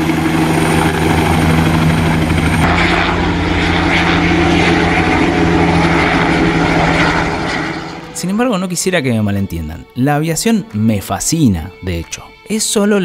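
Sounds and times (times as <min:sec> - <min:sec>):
thin high whine: 0:00.0 - 0:08.2
helicopter rotor and engine drone: 0:00.0 - 0:09.6.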